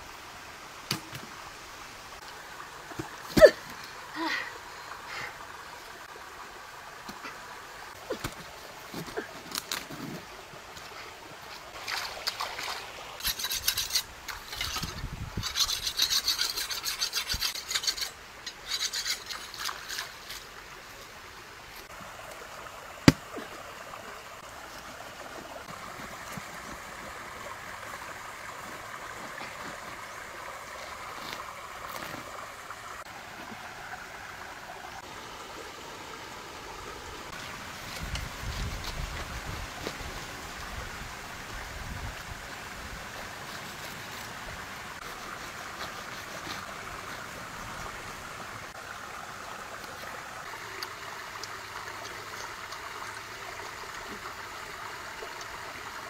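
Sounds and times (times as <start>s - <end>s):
creek flowing over stones: 0.0s - 56.0s
knife scraping fruit rind: 13.2s - 20.2s.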